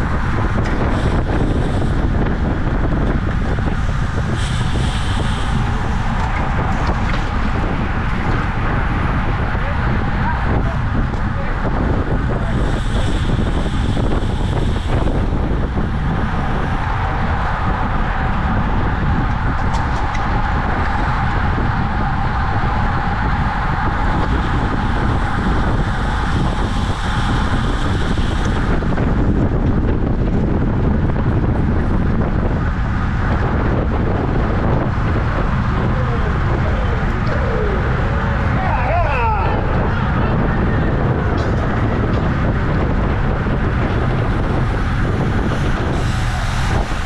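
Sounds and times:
wind noise on microphone: 0.0s - 47.0s
high hiss: 3.8s - 7.0s, 12.5s - 16.9s.

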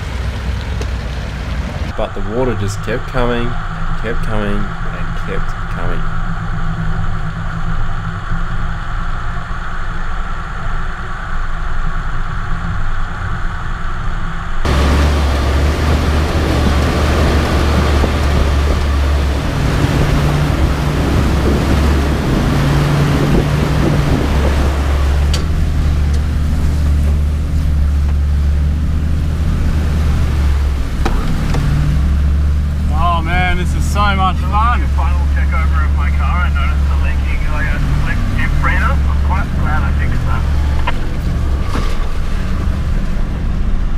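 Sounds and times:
vehicle engine running: 0.0s - 43.9s
wind noise: 1.7s - 43.9s
rush of water: 14.7s - 43.6s.

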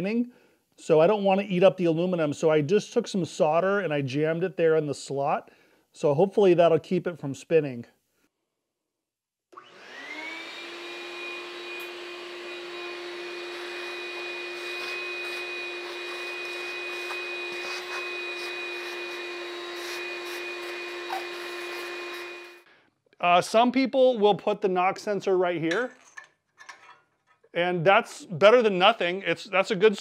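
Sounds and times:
shop vacuum running with whine: 9.6s - 22.6s.

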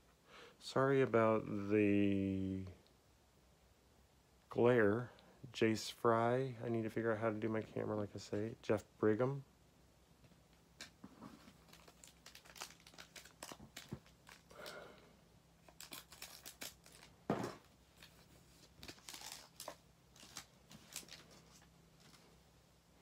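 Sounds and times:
cards handled with crackles: 10.5s - 14.9s, 15.6s - 22.3s
foil wrapper tearing and crinkling: 11.6s - 14.8s, 15.6s - 17.2s, 18.6s - 21.4s.

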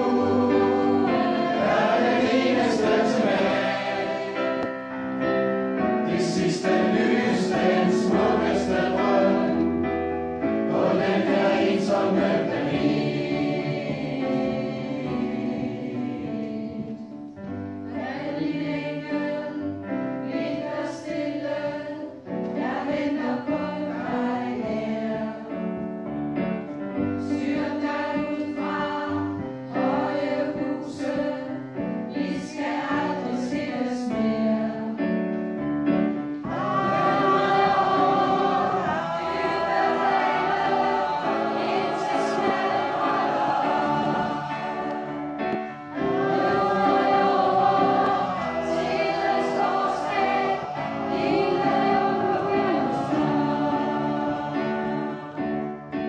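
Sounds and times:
choir singing: 0.0s - 17.2s, 17.9s - 25.8s, 27.2s - 35.2s, 36.3s - 56.0s.

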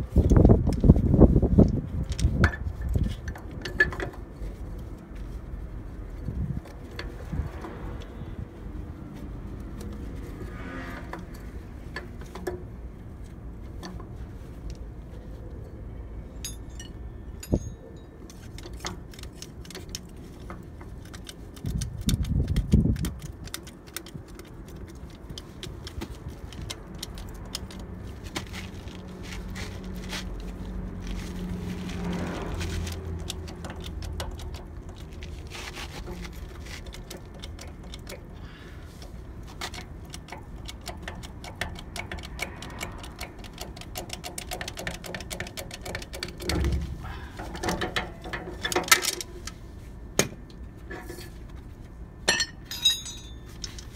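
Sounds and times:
metal clicks and scrapes: 9.2s - 14.8s, 16.4s - 49.8s, 50.4s - 53.9s
chain clinking against metal hub: 16.4s - 18.2s, 52.3s - 53.9s
low rumble: 46.4s - 47.6s.

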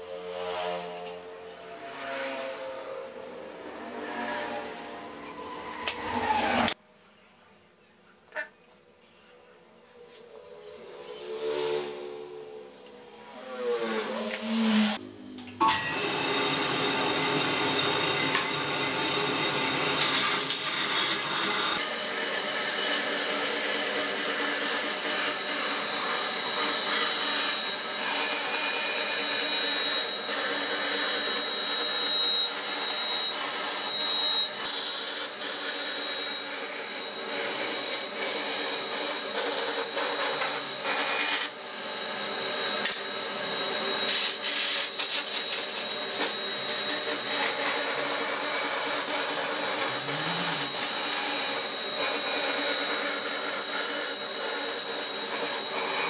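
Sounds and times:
band saw cutting wood: 0.0s - 6.8s, 10.2s - 56.0s.

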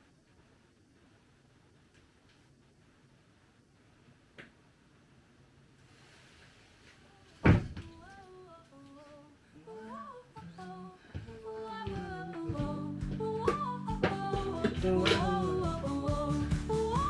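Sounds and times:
person humming a tune: 8.8s - 17.0s
instrumental music: 11.6s - 17.0s.

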